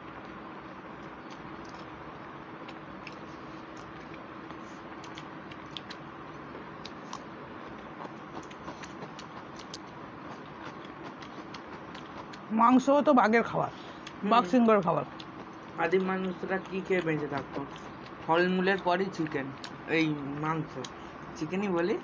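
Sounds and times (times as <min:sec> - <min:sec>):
faint hum: 0:00.0 - 0:22.0
chewing clicks and smacks: 0:01.0 - 0:12.5, 0:13.8 - 0:18.3, 0:19.1 - 0:21.4
fingers working rice on paper plates: 0:06.8 - 0:21.1.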